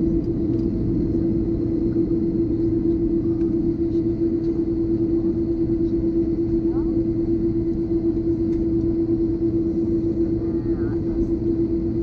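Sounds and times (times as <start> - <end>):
aircraft cabin engine rumble: 0.0 - 12.0.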